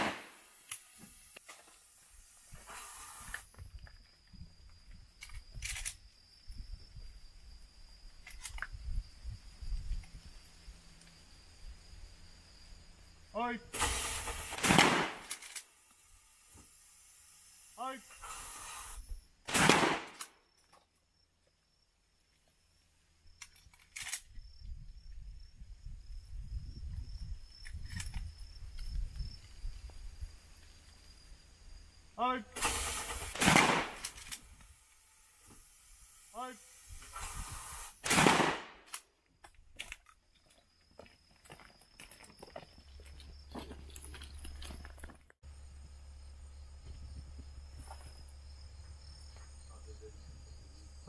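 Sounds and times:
low wind rumble on microphone: 6.4 - 10.7, 24.2 - 30.6
shotgun clicks: 14.2 - 15.7, 19.5 - 20.3, 32.6 - 34.5.

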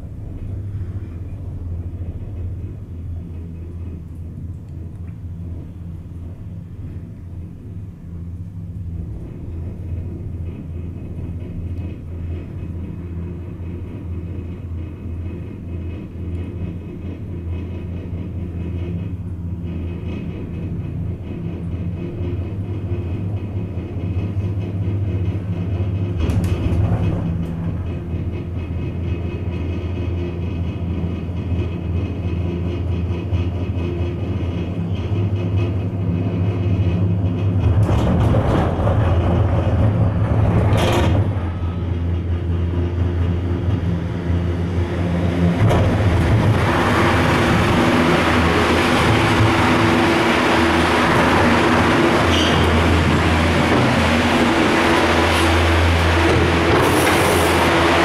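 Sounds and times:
gondola cabin humming and rumbling: 0.0 - 58.0
station machinery rushing: 33.4 - 58.0.

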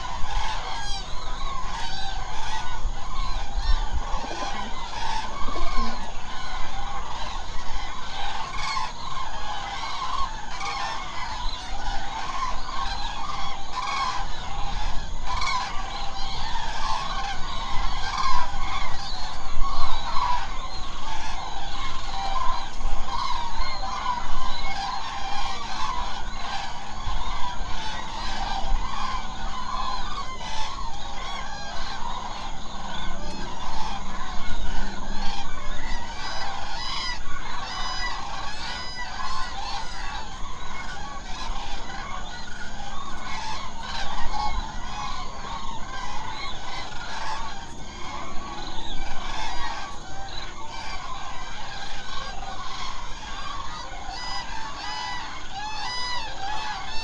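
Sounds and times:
flock of cranes calling: 0.0 - 57.0.

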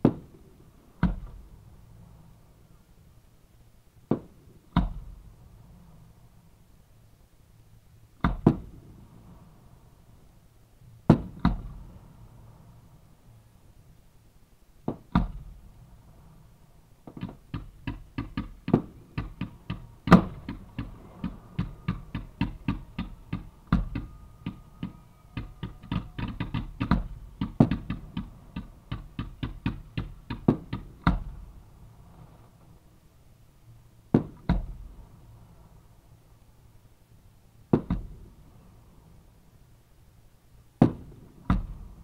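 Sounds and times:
fireworks bangs: 17.0 - 32.8, 40.8 - 42.0.

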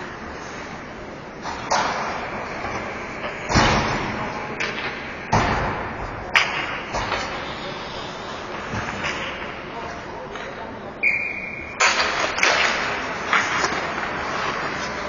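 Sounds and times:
hockey sticks and puck knocking: 1.4 - 7.6, 11.8 - 15.0.

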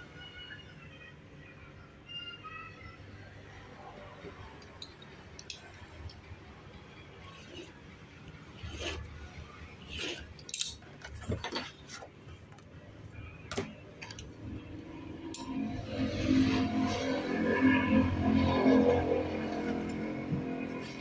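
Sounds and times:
paper scraping: 8.5 - 10.4
metal ruler clicks and knocks: 10.1 - 11.7.

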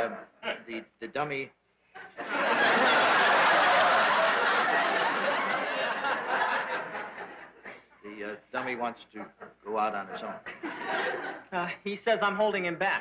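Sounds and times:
audience laughing: 2.0 - 7.9.

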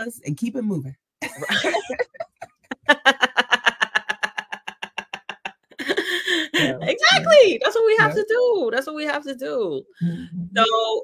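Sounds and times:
women laughing: 1.2 - 7.4.

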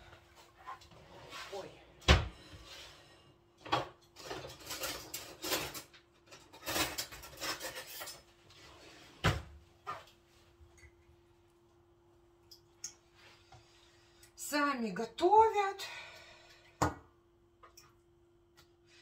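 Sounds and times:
faint steady hum: 0.0 - 19.0
dishes and utensils clattering: 3.6 - 8.4.

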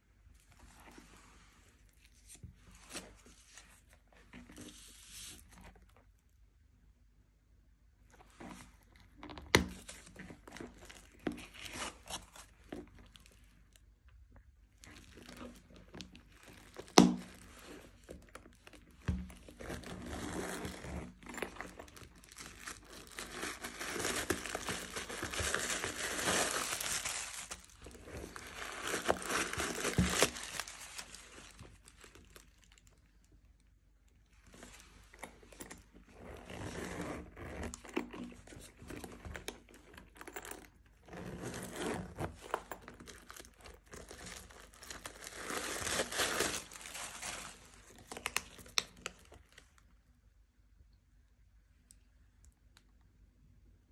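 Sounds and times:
paper wrapping crinkling and tearing: 14.8 - 33.0, 42.2 - 49.7.

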